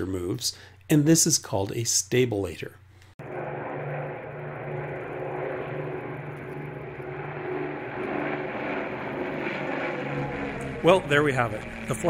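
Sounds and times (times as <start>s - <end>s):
propeller plane engines droning: 3.2s - 12.0s.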